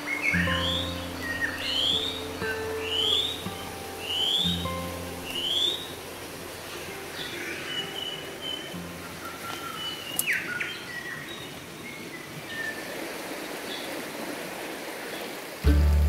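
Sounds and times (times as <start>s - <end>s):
birds whistling calls: 0.0s - 6.0s, 7.1s - 12.8s
steady background hiss: 0.0s - 16.0s.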